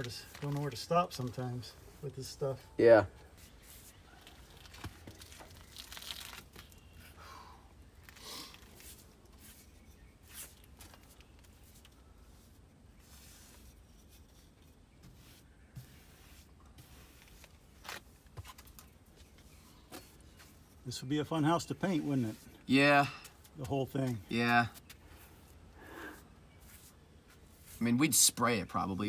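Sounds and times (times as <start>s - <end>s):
paintbrush brushing on wood: 3.4s - 4.1s, 11.5s - 17.6s, 21.6s - 22.7s, 26.2s - 28.2s.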